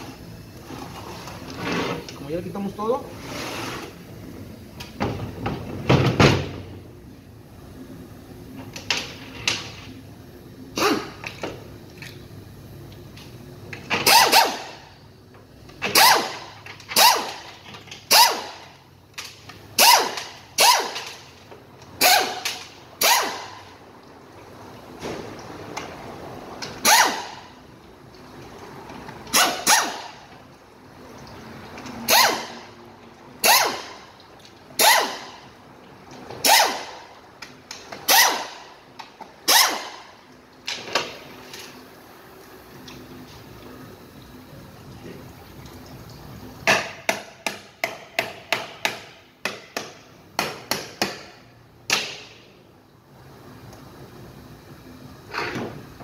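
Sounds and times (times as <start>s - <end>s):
pneumatic air ratchet bursts: 10.7s - 11.3s, 13.9s - 14.9s, 15.8s - 18.7s, 19.8s - 21.2s, 22.0s - 23.6s, 26.8s - 27.5s, 29.3s - 30.2s, 32.0s - 32.7s, 33.4s - 34.0s, 34.8s - 35.4s, 36.4s - 37.0s, 38.0s - 38.7s, 39.4s - 40.1s.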